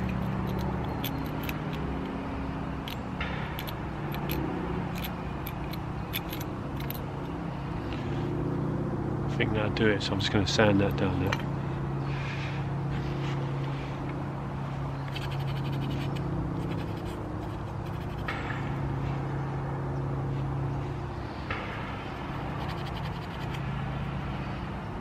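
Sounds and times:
steady low hum: 0:00.0 - 0:25.0
sandpaper rubbing on wood: 0:15.1 - 0:18.3, 0:22.2 - 0:23.6.

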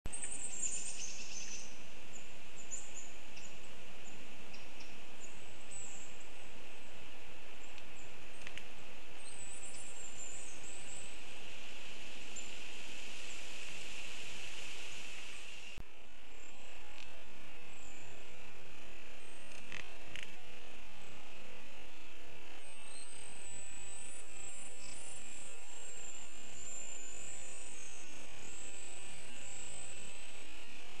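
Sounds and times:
small birds chirping: 0:00.1 - 0:15.8, 0:22.6 - 0:31.0
steady hiss: 0:00.2 - 0:19.4.

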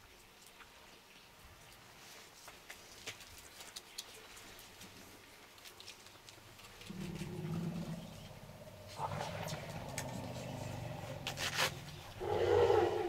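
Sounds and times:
elephants rumbling: 0:06.8 - 0:13.0.

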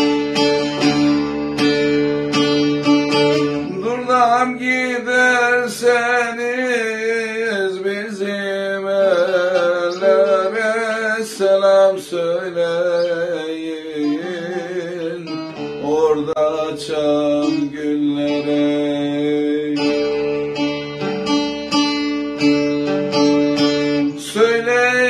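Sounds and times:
long-necked lute strummed: 0:00.0 - 0:25.0
man singing folk song: 0:02.5 - 0:20.8, 0:23.4 - 0:25.0.

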